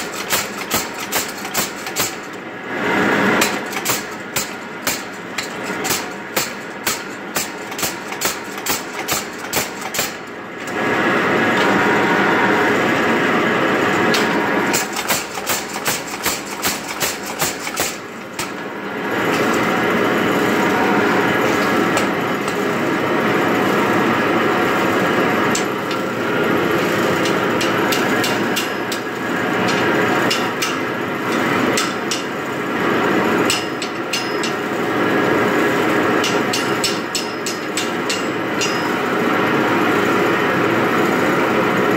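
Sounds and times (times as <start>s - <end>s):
power hammer pounding steel: 0.0s - 2.4s, 3.3s - 10.3s, 14.1s - 22.9s, 25.4s - 35.0s, 35.6s - 39.5s.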